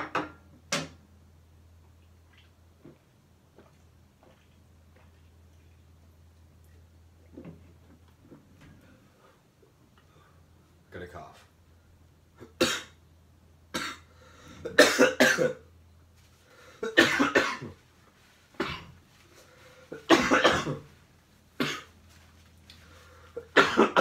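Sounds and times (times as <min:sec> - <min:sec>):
man coughing: 0:12.4 - 0:13.0, 0:14.7 - 0:15.6, 0:16.8 - 0:17.8, 0:18.6 - 0:18.9, 0:20.0 - 0:20.9, 0:21.6 - 0:21.9, 0:23.4 - 0:24.0.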